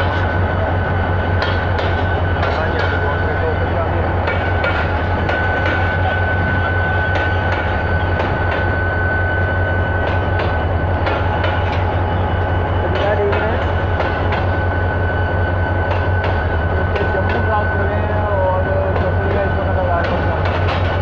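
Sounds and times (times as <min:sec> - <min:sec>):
train wheels clacking over rail joints: 0:01.3 - 0:06.2, 0:07.0 - 0:08.8, 0:10.0 - 0:12.0, 0:12.9 - 0:14.6, 0:15.8 - 0:17.6, 0:18.8 - 0:21.0.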